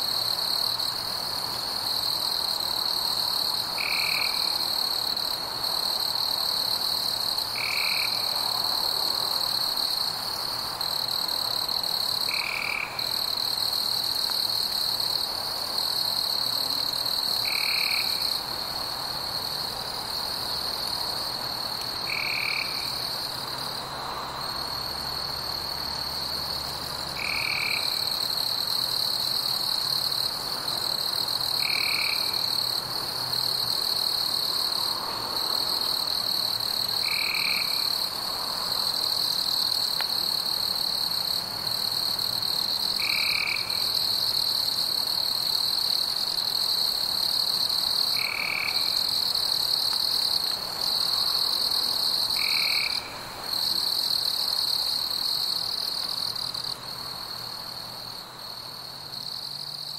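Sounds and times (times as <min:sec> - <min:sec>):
insects trilling: 0:00.0 - 0:59.9.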